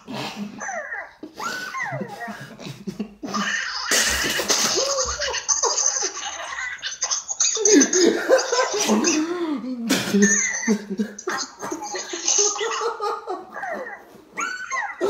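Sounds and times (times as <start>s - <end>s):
men laughing hard: 1.2s - 6.9s, 7.6s - 9.2s, 10.5s - 15.0s.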